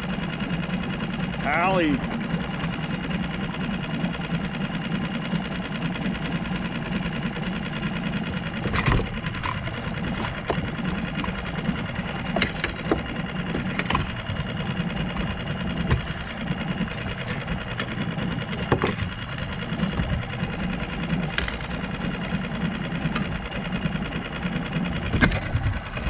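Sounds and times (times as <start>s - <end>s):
low mechanical hum: 0.0s - 26.0s
sharp clicks and knocks: 8.4s - 23.6s, 25.0s - 26.0s.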